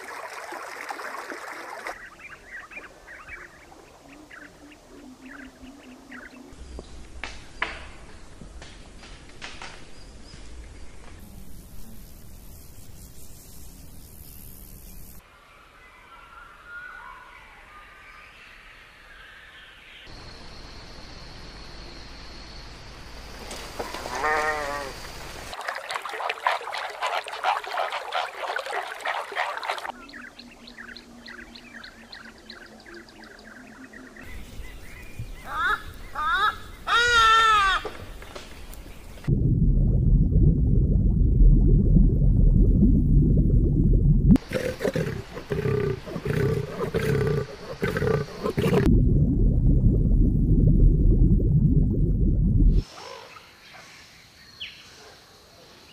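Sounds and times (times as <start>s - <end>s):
low underwater rumble: 39.2s - 44.4s, 48.3s - 52.8s
leopard growling: 44.4s - 48.9s.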